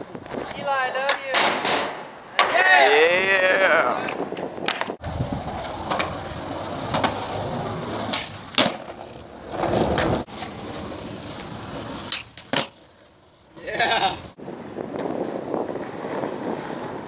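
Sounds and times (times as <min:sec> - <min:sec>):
skateboard wheels rolling on concrete: 0:00.0 - 0:17.0
skateboard clacks: 0:00.2 - 0:02.8, 0:04.0 - 0:17.0.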